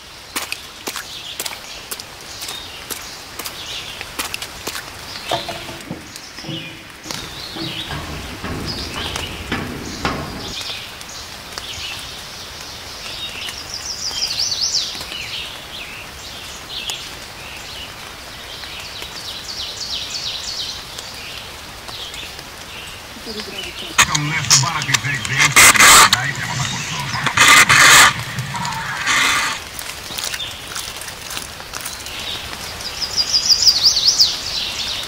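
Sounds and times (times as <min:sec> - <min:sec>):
songbirds chirping: 0:05.1 - 0:10.6
low rustling and clicks: 0:05.2 - 0:10.8, 0:24.0 - 0:29.6.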